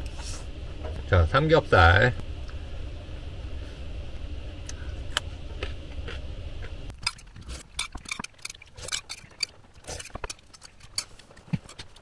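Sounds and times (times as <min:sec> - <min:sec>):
low rumble: 0:00.0 - 0:07.6.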